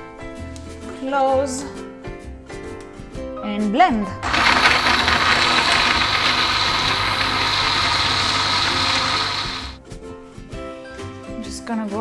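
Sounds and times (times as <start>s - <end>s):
blender motor running: 4.2s - 9.8s.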